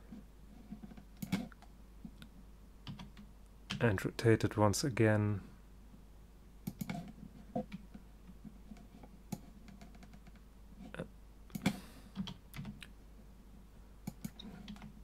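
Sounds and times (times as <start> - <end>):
mouse clicks: 14.0 - 14.9.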